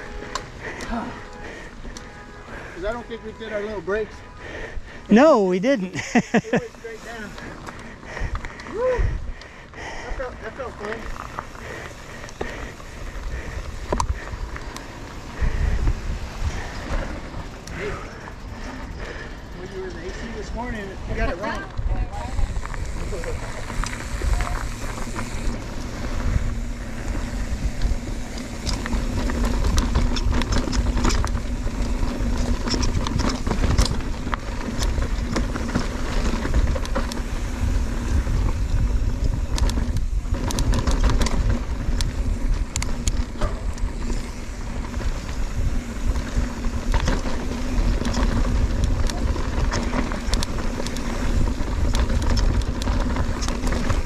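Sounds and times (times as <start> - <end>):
tyres rattling on rock and gravel: 6.0 - 54.0
wind buffeting microphone: 7.7 - 10.1, 11.0 - 54.0
small clicks and knocks: 47.9 - 51.2.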